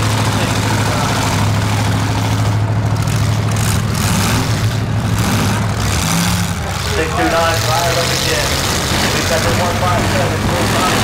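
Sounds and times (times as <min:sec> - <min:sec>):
car engines droning and revving: 0:00.0 - 0:11.0.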